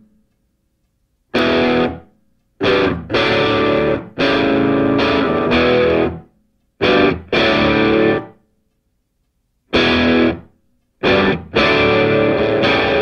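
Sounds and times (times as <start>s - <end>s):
distorted electric guitar chords: 1.3s - 2.0s, 2.6s - 8.4s, 9.7s - 13.0s.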